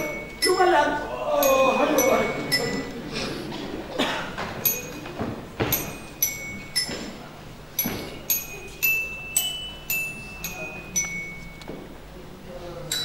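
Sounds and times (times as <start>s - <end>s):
metal chime melody: 0.0s - 3.0s, 5.7s - 11.6s.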